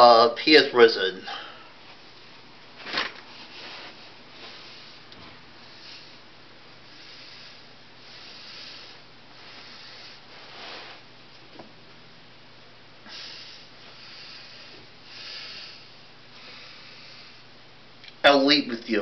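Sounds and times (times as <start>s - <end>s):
steady low hum: 0.0s - 19.0s
soft breathing close to microphone: 3.3s - 11.1s, 13.1s - 17.5s.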